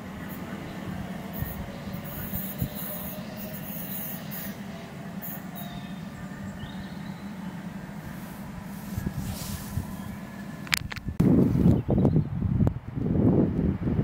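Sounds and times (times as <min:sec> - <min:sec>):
train rumbling: 0:00.0 - 0:14.0
wind noise on microphone: 0:00.8 - 0:03.3, 0:08.8 - 0:14.0.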